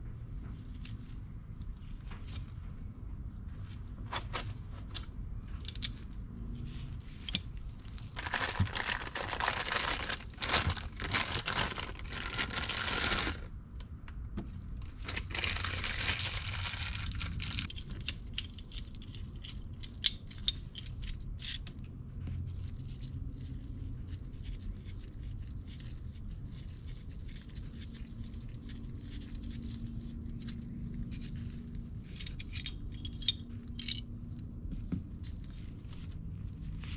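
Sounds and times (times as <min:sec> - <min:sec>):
metal parts clicking and tapping: 0:04.9 - 0:06.1, 0:17.6 - 0:22.0, 0:32.1 - 0:34.1
plastic bags crinkling: 0:08.0 - 0:13.5, 0:14.9 - 0:17.7.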